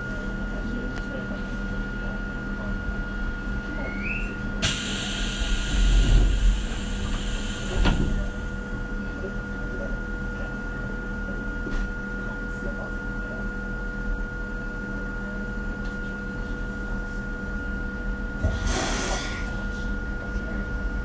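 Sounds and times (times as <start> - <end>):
train equipment hum with whine: 0.0 - 21.0
compressed air hiss: 18.6 - 19.4.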